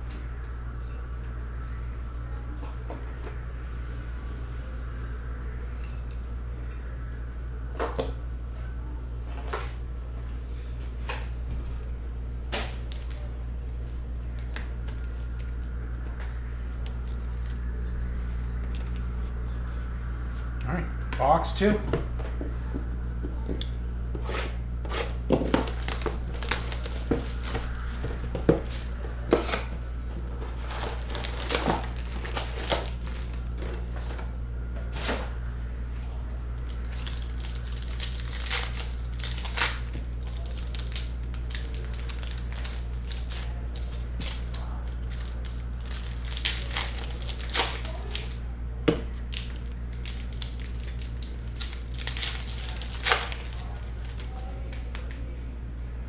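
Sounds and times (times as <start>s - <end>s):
low hum: 0.0s - 56.0s
foil packs crinkling: 25.1s - 29.7s, 30.3s - 33.6s, 36.6s - 48.4s, 49.1s - 55.2s.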